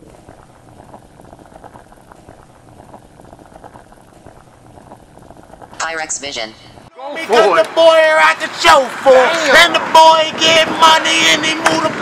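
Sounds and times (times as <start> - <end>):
liquid boiling and bubbling: 0.0 - 6.9.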